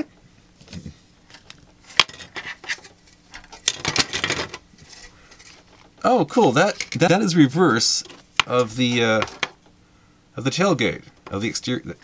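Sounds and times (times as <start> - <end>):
plastic parts clicking and rattling: 1.3 - 7.0, 8.0 - 9.6.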